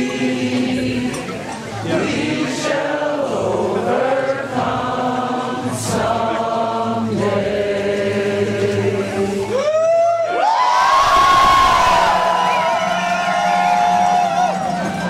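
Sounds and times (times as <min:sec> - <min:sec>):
crowd singing slow long notes: 0:00.0 - 0:14.9
whoops and cheering: 0:09.5 - 0:15.0.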